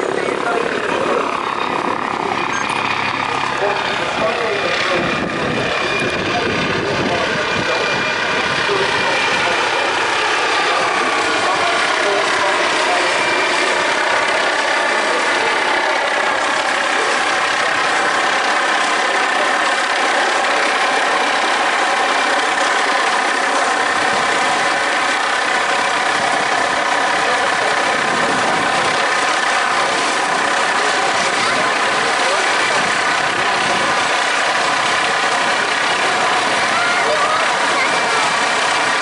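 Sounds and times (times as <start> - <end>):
helicopter rotor noise: 0.0 - 39.0
helicopter turbine whine: 0.0 - 39.0.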